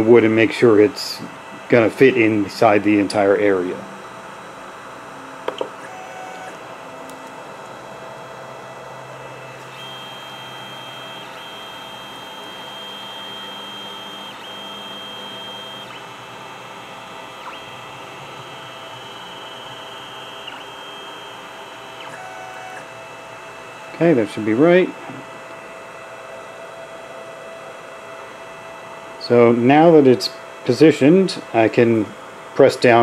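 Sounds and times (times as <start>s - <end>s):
cooling fan humming: 0.0s - 33.0s
stepper motors whining: 9.3s - 22.9s.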